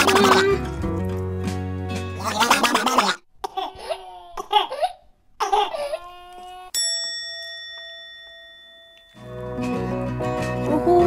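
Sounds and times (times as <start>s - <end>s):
person laughing: 0.0s - 0.6s
bright chime: 6.8s - 9.9s.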